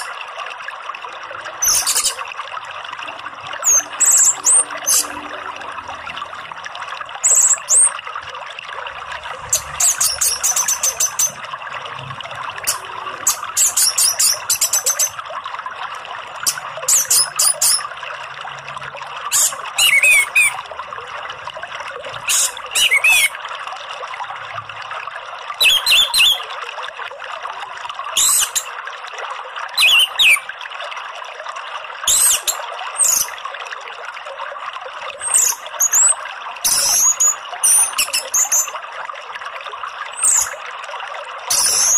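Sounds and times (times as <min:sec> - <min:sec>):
running water: 0:00.0 - 0:41.9.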